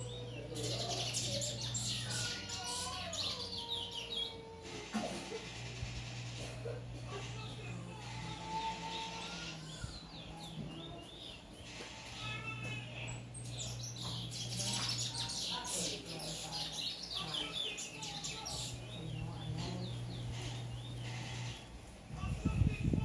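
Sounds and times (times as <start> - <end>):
finch chirping song: 0.0 - 4.3, 13.0 - 21.3.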